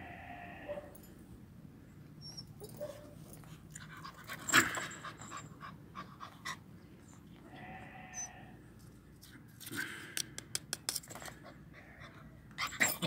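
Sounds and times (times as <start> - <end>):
metal chain clinking: 12.6 - 13.0.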